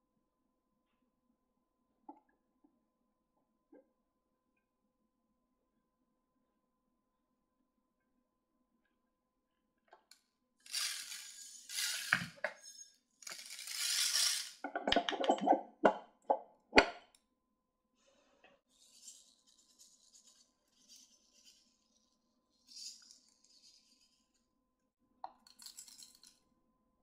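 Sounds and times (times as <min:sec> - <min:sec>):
metal pellets rattling: 0:10.7 - 0:14.6, 0:25.5 - 0:26.4.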